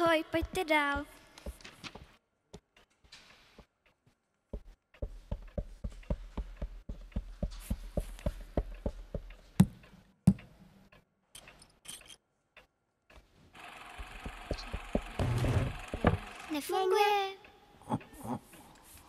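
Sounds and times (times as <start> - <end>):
heavier knocks with low hum: 14.2 - 16.3.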